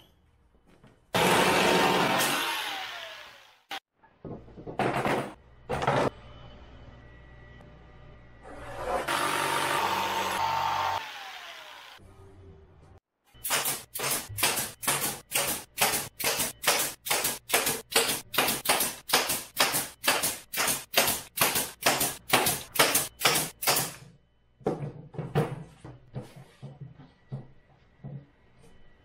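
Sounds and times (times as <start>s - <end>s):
nail gun firing: 13.4s - 24.0s.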